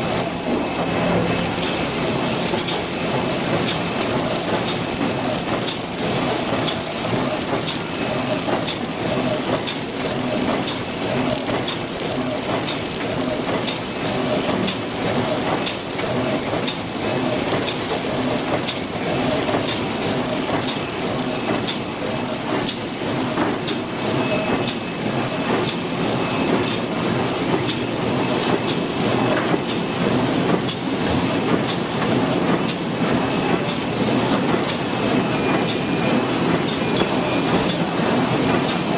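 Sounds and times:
conveyor machinery rattle: 0:00.0 - 0:38.9
sharp machine clicks: 0:01.4 - 0:14.8.

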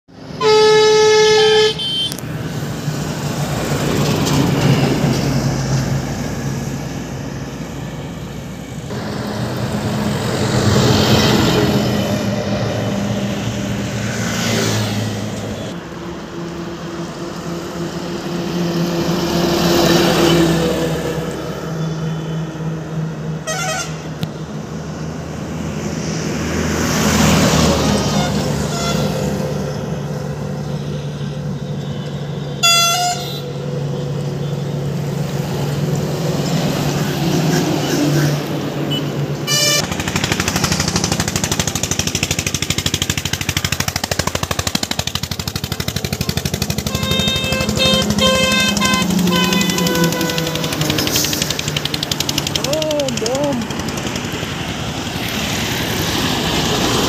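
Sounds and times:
steady engine hum: 0:00.1 - 0:57.0
vehicles passing on highway: 0:00.1 - 0:57.0
vehicle horn: 0:00.3 - 0:02.2, 0:23.4 - 0:24.2, 0:28.1 - 0:29.3, 0:30.9 - 0:33.6, 0:38.9 - 0:39.9, 0:46.7 - 0:51.0.

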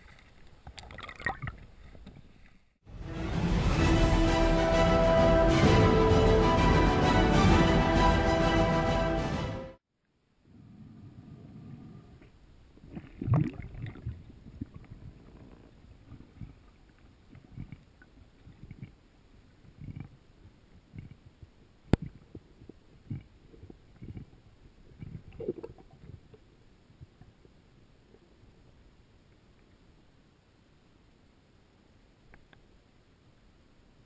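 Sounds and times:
underwater thumps and rumbles: 0:22.0 - 0:26.4.

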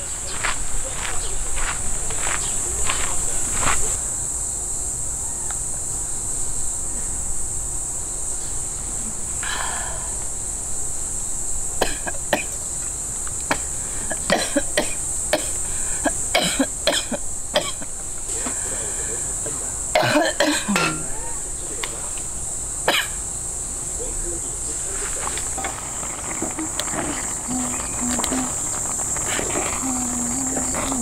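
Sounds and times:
insects chorus: 0:00.0 - 0:31.0
cookware clicking on metal table: 0:20.7 - 0:21.1.

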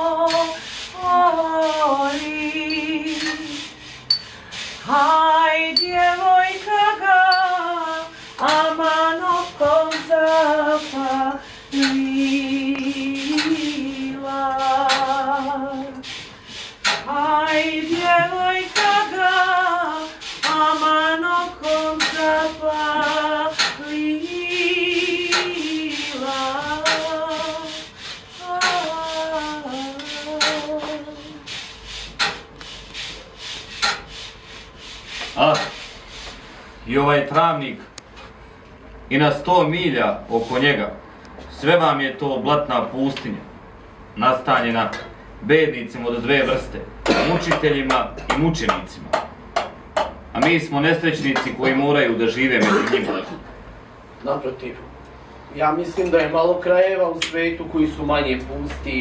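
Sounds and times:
woman singing with vibrato: 0:00.0 - 0:03.7, 0:04.8 - 0:16.0, 0:17.0 - 0:31.5
clicks and scrapes: 0:33.6 - 0:34.2.

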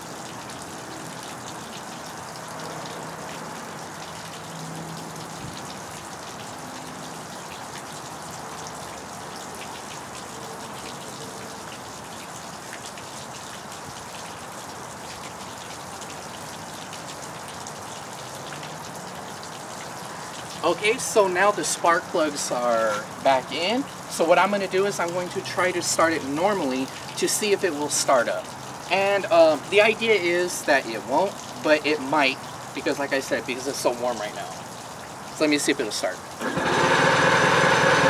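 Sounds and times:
water splashing from outboard motor: 0:36.4 - 0:38.0.

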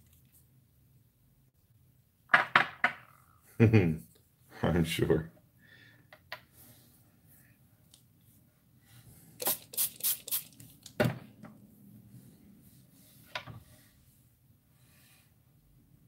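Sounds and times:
spray bottle spritzing: 0:09.4 - 0:10.9.

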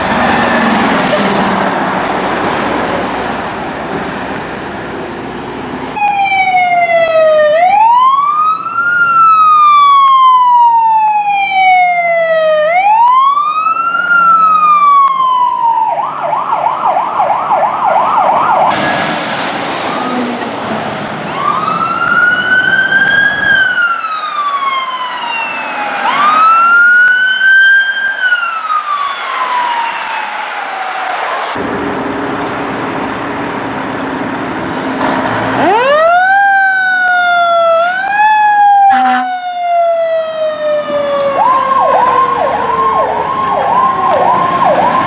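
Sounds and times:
engine and traffic noise: 0:00.0 - 0:45.0
siren yelping: 0:06.0 - 0:18.7, 0:21.3 - 0:31.6, 0:35.6 - 0:45.0
siren wailing: 0:06.0 - 0:18.8, 0:21.2 - 0:31.6, 0:35.5 - 0:45.0.

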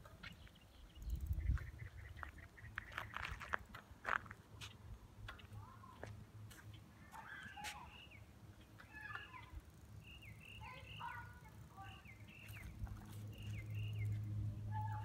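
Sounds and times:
bird chirping: 0:00.2 - 0:03.6, 0:06.6 - 0:15.0.

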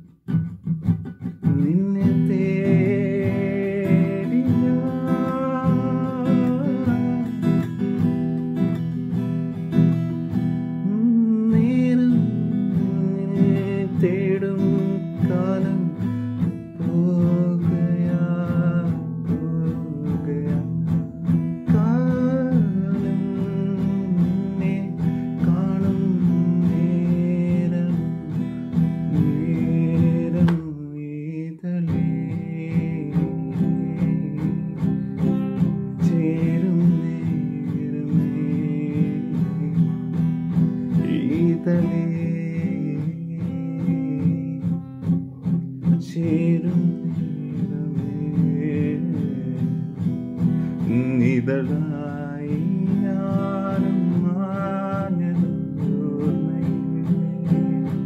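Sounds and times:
acoustic guitar strumming: 0:00.0 - 0:58.0.

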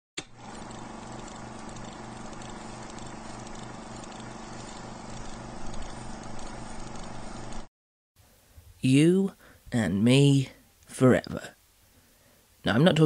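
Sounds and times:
film projector clatter: 0:00.2 - 0:07.7
film crackle: 0:00.4 - 0:07.7
low hum: 0:00.4 - 0:07.7.

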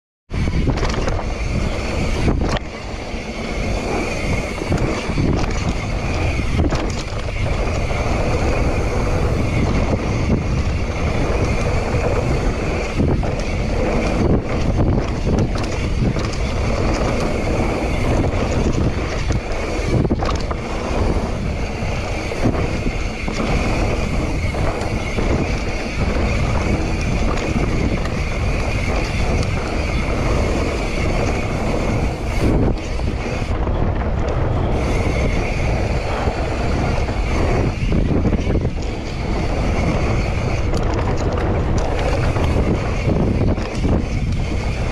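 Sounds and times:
bike knocking and rattling: 0:00.3 - 0:44.9
bike tyres rolling on dirt: 0:00.3 - 0:44.9
wind buffeting microphone: 0:00.3 - 0:44.9.

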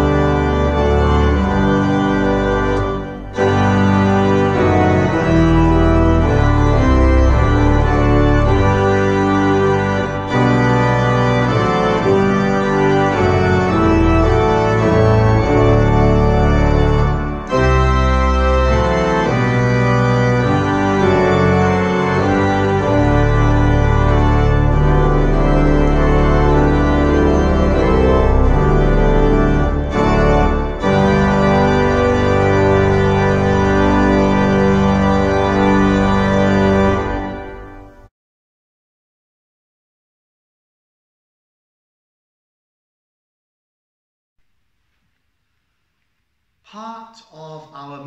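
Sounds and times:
church organ playing chords: 0:00.0 - 0:38.1.

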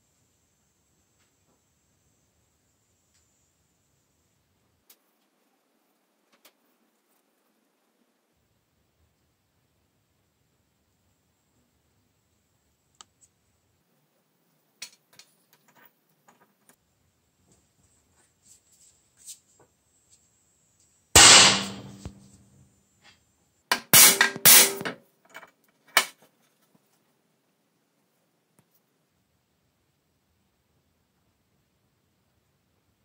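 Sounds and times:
hammer striking steel plunger: 0:21.2 - 0:22.2.

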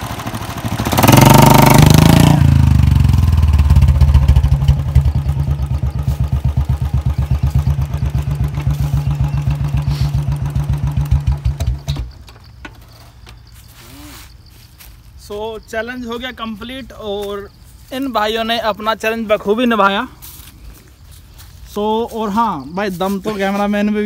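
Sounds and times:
motorcycle engine revving and idling: 0:00.0 - 0:13.1.

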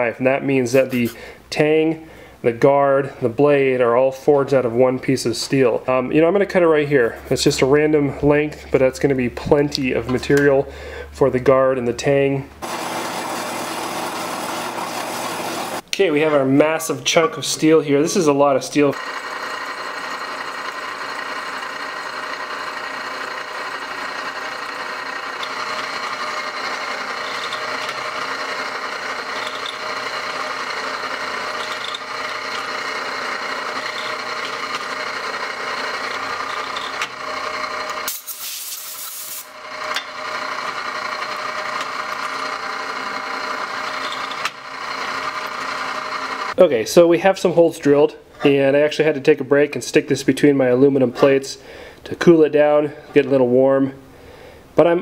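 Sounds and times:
drill bit cutting steel: 0:12.6 - 0:15.8, 0:18.9 - 0:46.6
drill press humming: 0:12.6 - 0:15.9, 0:18.9 - 0:46.6.

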